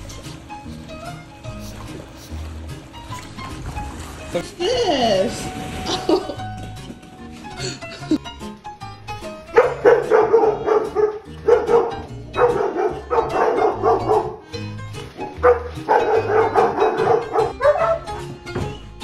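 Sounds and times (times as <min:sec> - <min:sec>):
background music with bass line: 0:00.0 - 0:19.0
dogs barking: 0:09.2 - 0:18.5.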